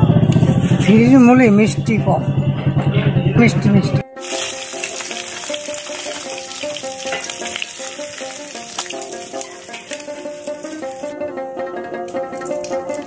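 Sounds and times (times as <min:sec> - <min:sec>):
plucked-string background music: 0:00.0 - 0:13.0
fish sizzling in hot oil: 0:04.2 - 0:11.1.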